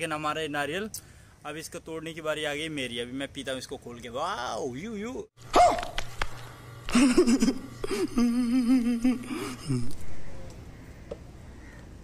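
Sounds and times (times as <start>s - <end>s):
person making wavering vocal sound: 7.9s - 10.5s.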